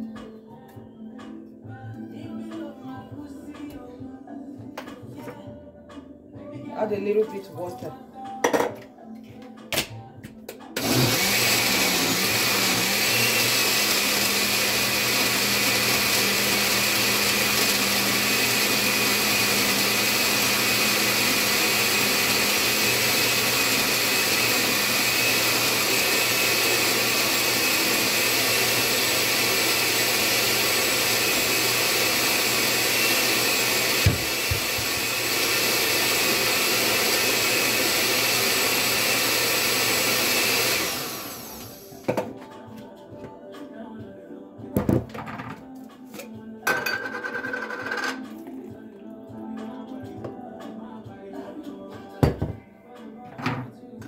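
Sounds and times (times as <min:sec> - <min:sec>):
countertop blender running: 0:10.8 - 0:42.1, 0:46.7 - 0:48.2.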